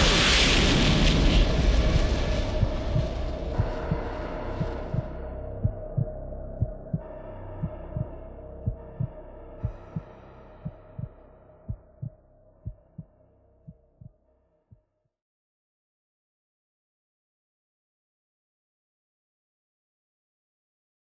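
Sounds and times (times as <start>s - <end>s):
held drone: 0.0s - 11.8s
heartbeat-like low thuds: 0.0s - 14.2s.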